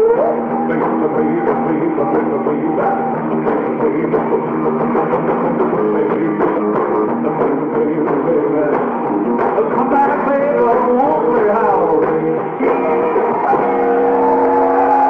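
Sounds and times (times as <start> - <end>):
drums: 0.0 - 15.0
electric guitar: 0.0 - 15.0
rock band playing live: 0.0 - 15.0.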